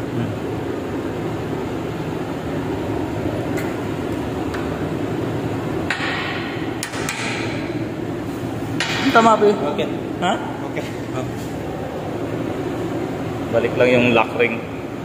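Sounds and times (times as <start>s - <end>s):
workshop machinery humming: 0.0s - 15.0s.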